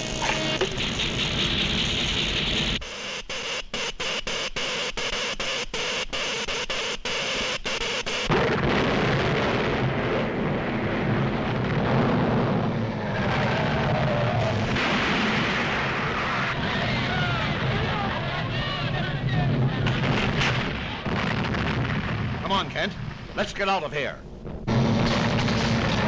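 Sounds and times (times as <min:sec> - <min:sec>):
loud explosion: 0:08.3 - 0:23.5, 0:24.4 - 0:26.0
rumbling of collapsing buildings: 0:08.3 - 0:23.6, 0:24.4 - 0:26.0.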